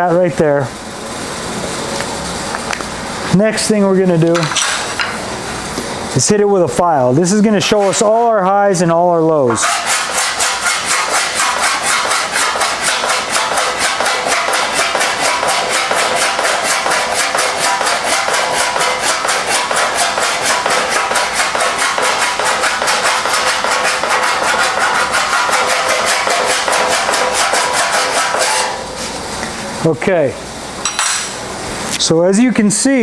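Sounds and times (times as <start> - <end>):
hand file scraping metal: 7.6 - 8.2, 9.5 - 28.8.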